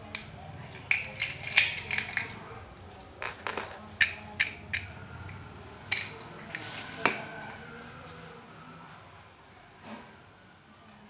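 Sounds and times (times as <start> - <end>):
padlock and keys clinking: 0.0 - 5.4.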